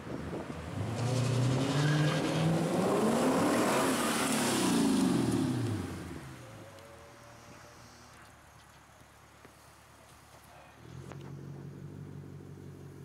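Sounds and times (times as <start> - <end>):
car accelerating past: 0.4 - 6.4.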